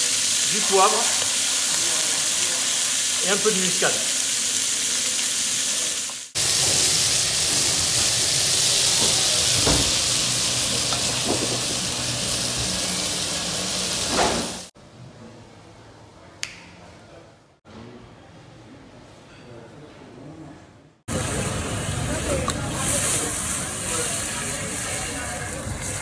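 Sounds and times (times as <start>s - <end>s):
meat sizzling in a pot: 0.0s - 14.7s, 21.1s - 26.0s.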